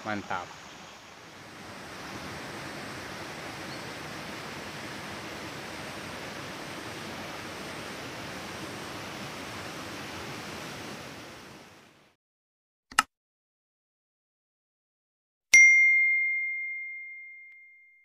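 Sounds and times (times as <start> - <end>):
outdoor background noise: 0.0 - 12.2
bell ding: 15.6 - 18.0.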